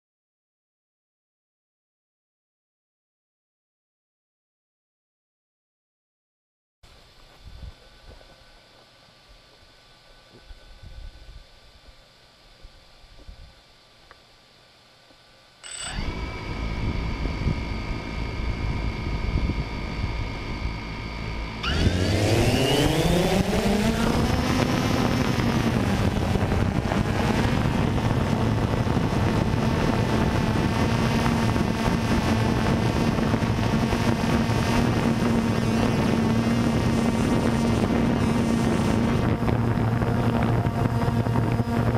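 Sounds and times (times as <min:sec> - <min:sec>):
drone motors whining and buzzing: 0:15.6 - 0:41.9.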